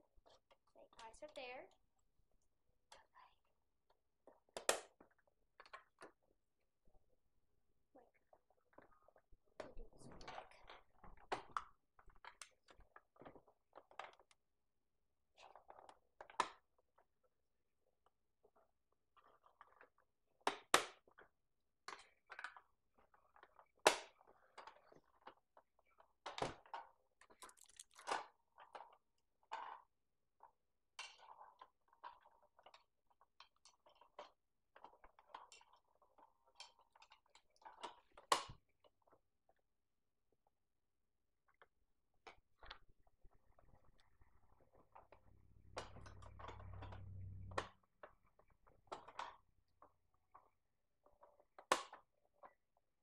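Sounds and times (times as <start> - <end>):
hands handling toy pieces: 27.3 - 28.3.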